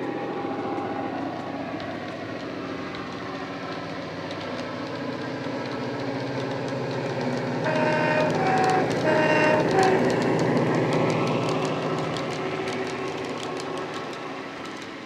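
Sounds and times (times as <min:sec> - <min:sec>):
two-tone horn blasts: 0:07.7 - 0:10.2.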